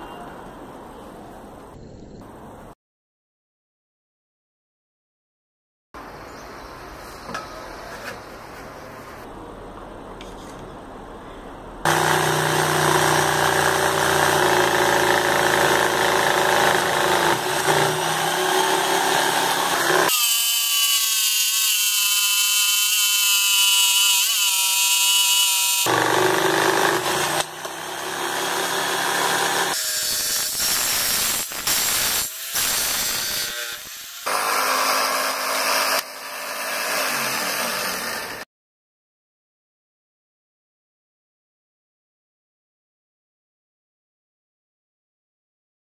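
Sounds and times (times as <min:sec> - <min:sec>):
electric jigsaw cutting wood: 0:11.9 - 0:38.5.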